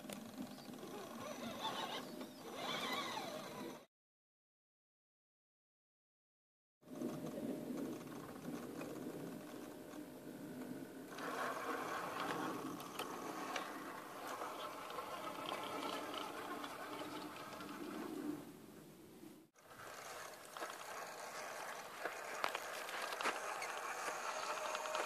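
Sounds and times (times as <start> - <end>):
electric motor whining: 0.0 - 3.9, 11.1 - 18.2, 19.7 - 25.0
tyres scrabbling: 11.2 - 18.3, 19.6 - 25.0.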